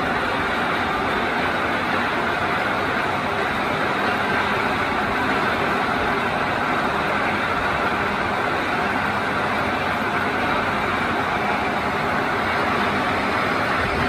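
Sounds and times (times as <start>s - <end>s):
lathe running: 0.0s - 14.0s.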